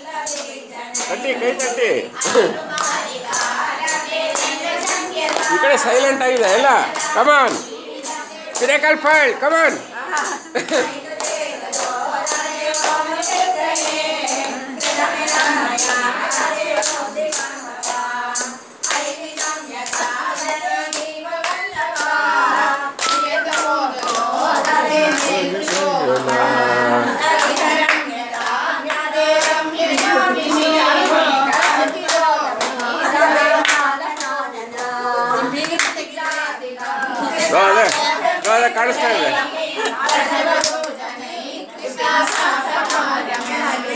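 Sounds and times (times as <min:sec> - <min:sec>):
rhythmic hand clapping: 0:00.0 - 0:43.9
women singing together: 0:00.0 - 0:43.9.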